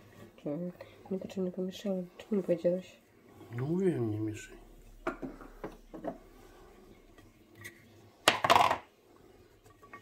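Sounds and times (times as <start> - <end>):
kitchen objects clattering: 7.6 - 8.9.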